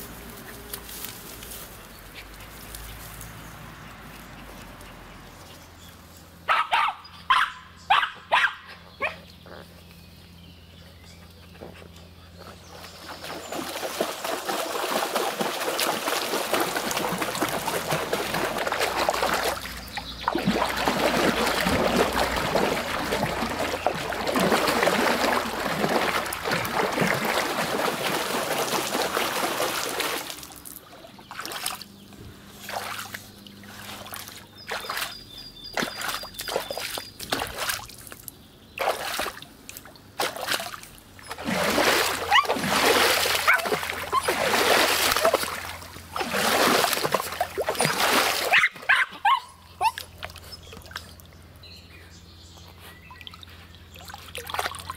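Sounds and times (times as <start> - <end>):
dog splashing through water: 12.7 - 32.0, 32.6 - 38.2, 38.8 - 49.0, 53.2 - 54.9.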